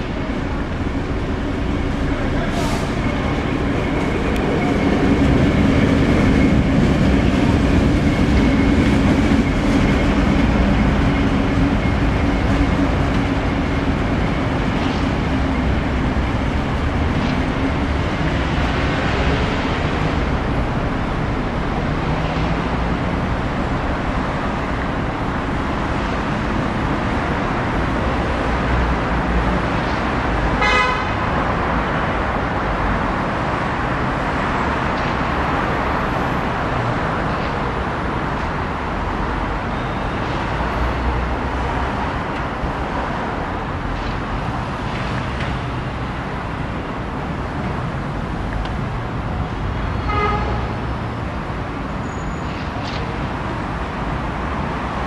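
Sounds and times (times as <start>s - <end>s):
locomotive engine droning: 0.0s - 31.0s
city traffic noise: 0.0s - 55.0s
horn toot: 30.6s - 31.2s.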